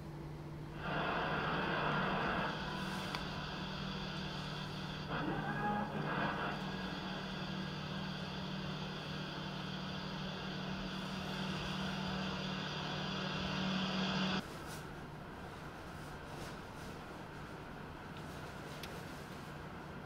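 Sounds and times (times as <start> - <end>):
mechanical droning hum: 0.0 - 20.0
hiss: 0.8 - 14.4.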